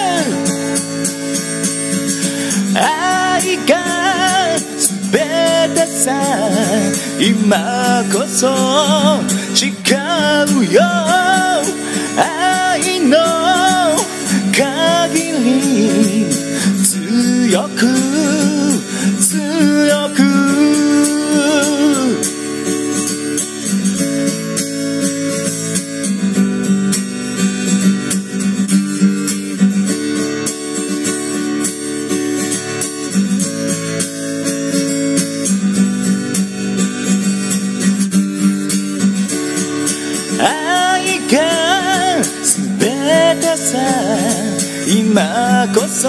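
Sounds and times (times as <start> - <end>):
person singing wordlessly: 0.0 - 1.0, 2.6 - 22.3, 40.3 - 46.0
acoustic guitar strumming: 0.0 - 46.0.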